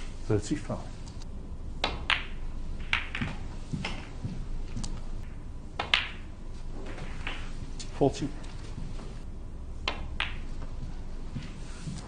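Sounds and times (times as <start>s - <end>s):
snooker balls clicking: 1.8s - 9.1s, 9.8s - 10.8s.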